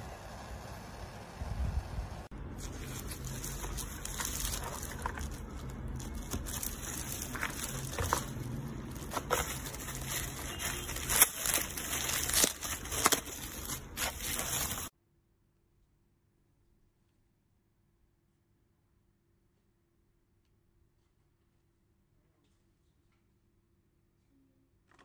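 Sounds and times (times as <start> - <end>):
bubble wrap crinkling: 2.4 - 14.9.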